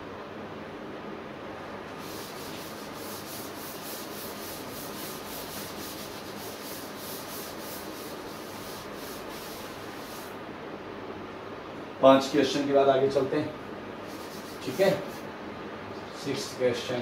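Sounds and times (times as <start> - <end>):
duster rubbing chalkboard: 1.9 - 10.4, 14.0 - 15.3.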